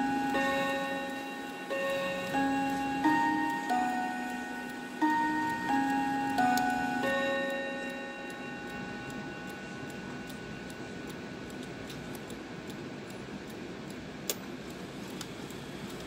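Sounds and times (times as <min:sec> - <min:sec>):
faint clock chime: 0:00.0 - 0:11.8
clock ticking: 0:00.0 - 0:16.0.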